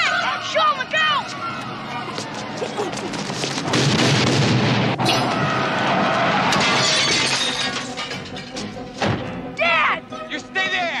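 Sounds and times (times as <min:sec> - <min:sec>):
loud explosion rumbling: 0:03.7 - 0:05.0.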